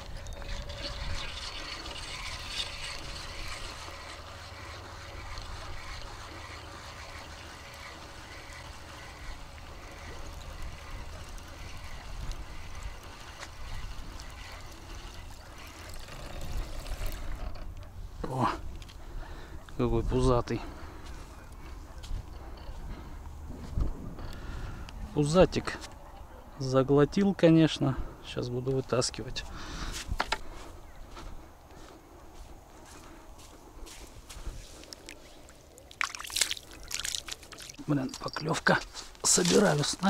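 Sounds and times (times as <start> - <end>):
water splashing and rippling: 0.0 - 17.6, 34.5 - 40.0
outdoor background noise: 0.0 - 40.0.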